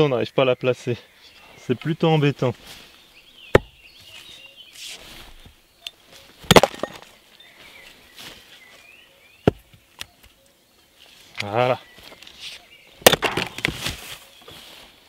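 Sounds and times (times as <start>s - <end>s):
log knocking on chopping block: 3.5s - 3.8s, 9.4s - 9.8s, 13.0s - 13.8s.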